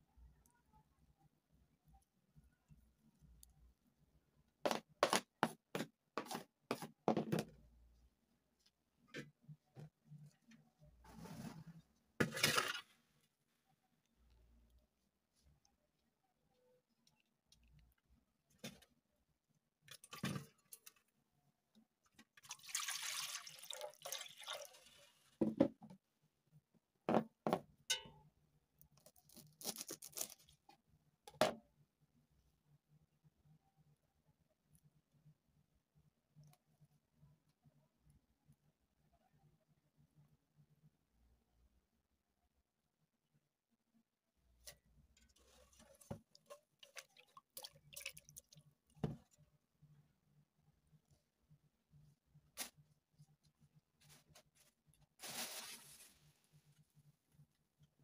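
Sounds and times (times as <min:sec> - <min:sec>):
water pouring into metal bowl: 0:22.4 - 0:25.3
herb bunch rustling: 0:54.0 - 0:56.4.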